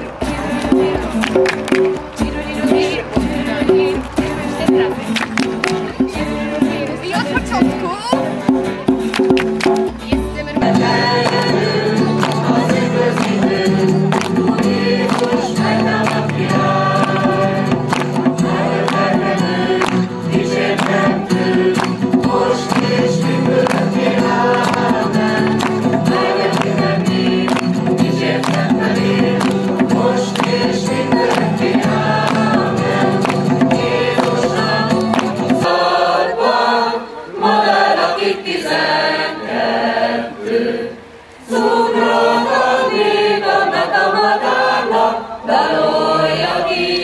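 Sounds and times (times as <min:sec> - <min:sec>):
mixed choir singing: 0:00.0 - 0:09.1, 0:10.5 - 0:47.0
hand drum: 0:00.0 - 0:35.7
acoustic guitar: 0:00.0 - 0:37.4.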